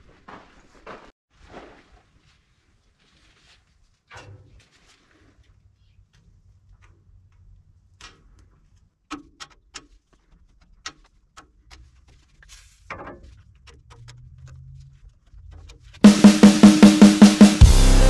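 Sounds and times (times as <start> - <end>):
grease gun clicks and metal knocks: 8.0 - 12.2, 12.9 - 16.0.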